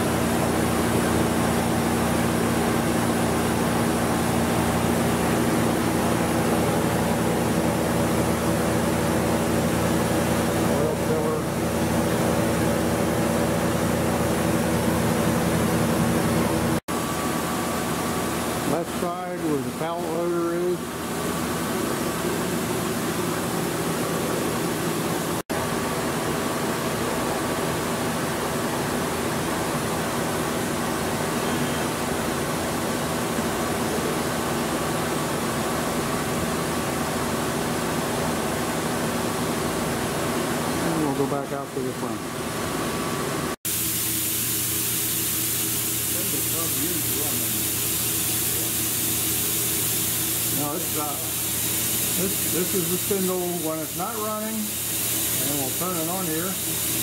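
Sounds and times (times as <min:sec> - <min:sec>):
filtration machine hum: 0:00.0 - 0:57.0
even hiss: 0:43.7 - 0:57.0.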